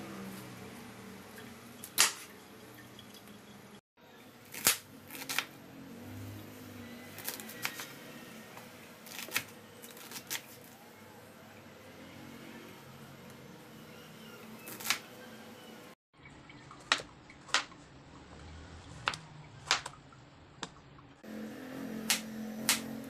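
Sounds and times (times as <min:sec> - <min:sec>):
knife cutting cabbage on board: 0:07.2 - 0:08.0.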